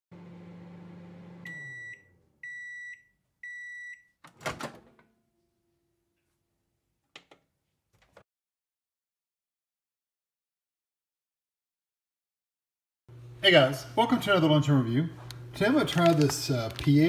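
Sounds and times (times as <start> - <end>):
microwave oven humming: 0.1 - 5.5, 13.1 - 17.0
microwave beeps: 1.2 - 4.2
microwave door popping open: 4.3 - 5.0.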